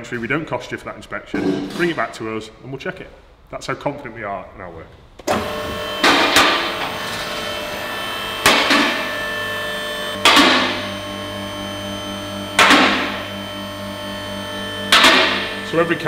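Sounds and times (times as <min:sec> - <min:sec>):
hydraulic pump motor humming: 0:05.2 - 0:16.0.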